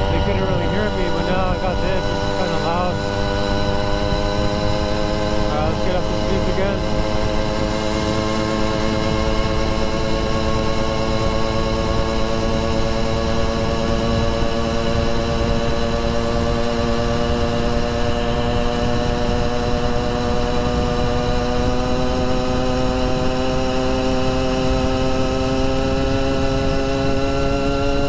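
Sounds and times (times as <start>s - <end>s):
wind rumble on microphone: 0.0s - 22.1s
two-stroke engine revving: 0.0s - 28.0s.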